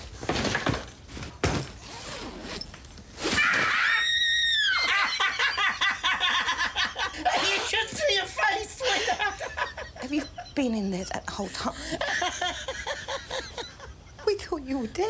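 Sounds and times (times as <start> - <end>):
knocks and rustling of handling: 0.0 - 3.4
woman screaming: 3.4 - 5.3
man laughing: 4.8 - 10.4, 11.8 - 14.2.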